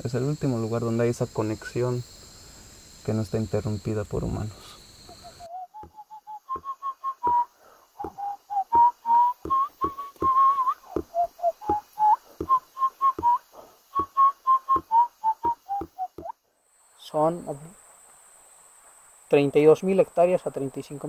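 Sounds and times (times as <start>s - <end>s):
whistled tune: 5.2s - 13.4s, 14.0s - 16.3s.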